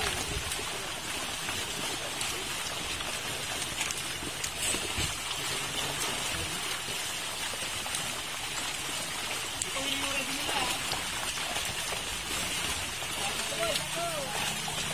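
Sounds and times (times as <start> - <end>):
fish splashing in a net: 0.0 - 14.9.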